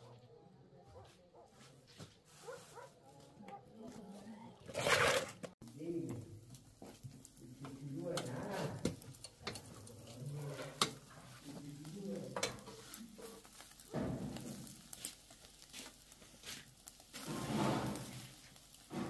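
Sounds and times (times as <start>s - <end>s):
fire crackling and popping: 4.2s - 19.0s
meat sizzling: 5.2s - 19.0s.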